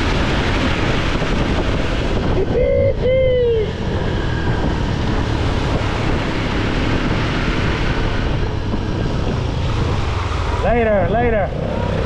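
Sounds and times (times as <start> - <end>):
wind rush over microphone: 0.0 - 12.0
motorcycle engine running: 3.6 - 12.0.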